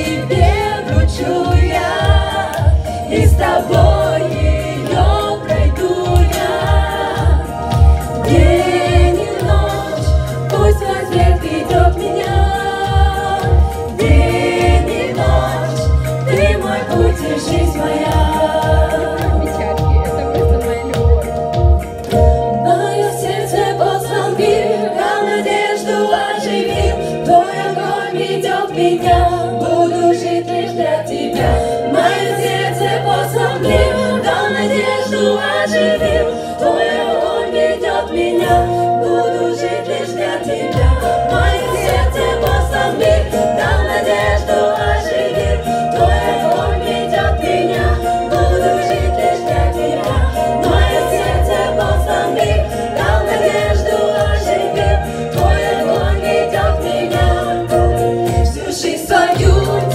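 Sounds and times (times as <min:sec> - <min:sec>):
steady beat: 0:00.0 - 0:22.6, 0:40.5 - 0:58.6
keyboard accompaniment: 0:00.0 - 0:59.9
women singing into microphones: 0:00.0 - 0:59.9.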